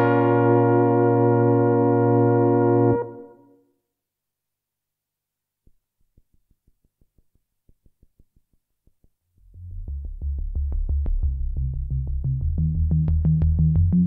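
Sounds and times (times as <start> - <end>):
synthesizer bass line: 9.4 - 14.0.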